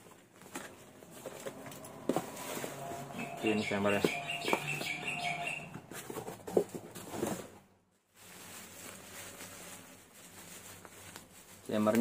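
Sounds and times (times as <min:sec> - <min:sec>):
cardboard box rustling: 0:00.0 - 0:04.9
faint plastic rustle: 0:06.0 - 0:12.0.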